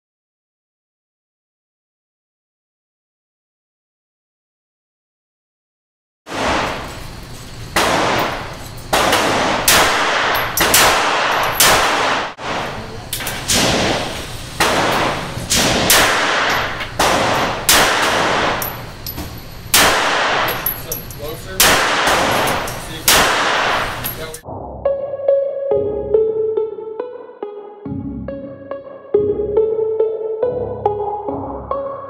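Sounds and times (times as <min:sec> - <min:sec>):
pistol shots echoing indoors: 0:06.3 - 0:07.0, 0:07.7 - 0:24.4.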